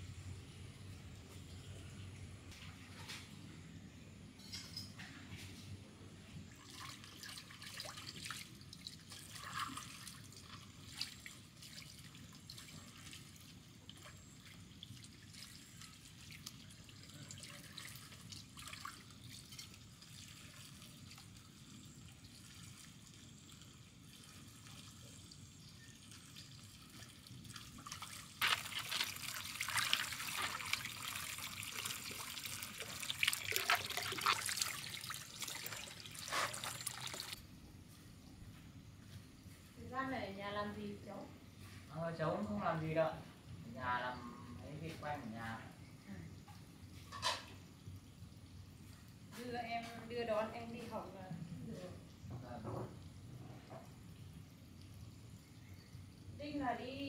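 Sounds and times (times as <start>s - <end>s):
running water stream: 6.5s - 37.4s
water dripping and splashing: 6.5s - 37.4s, 46.4s - 56.8s.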